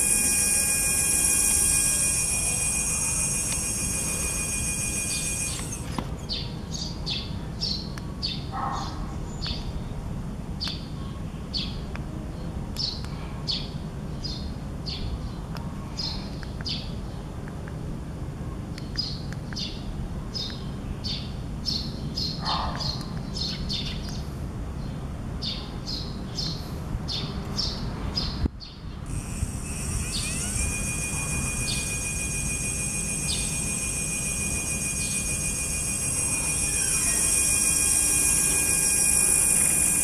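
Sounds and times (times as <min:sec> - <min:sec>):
electric motor whine: 0:00.0 - 0:06.4, 0:29.1 - 0:40.0
low hum: 0:00.0 - 0:06.4, 0:29.0 - 0:40.0
small bird chirping: 0:29.1 - 0:40.0.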